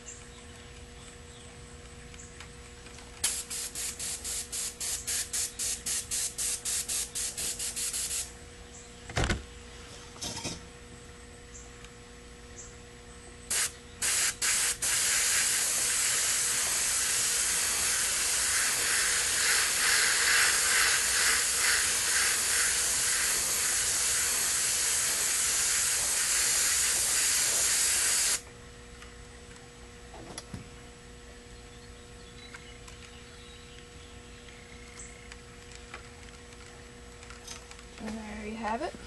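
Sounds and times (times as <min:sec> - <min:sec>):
spray paint can hissing: 0:03.2 - 0:08.3, 0:13.5 - 0:28.4.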